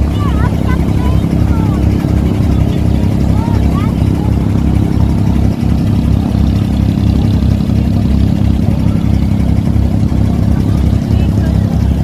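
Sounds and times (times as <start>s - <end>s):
boat diesel engine droning: 0.0s - 12.0s.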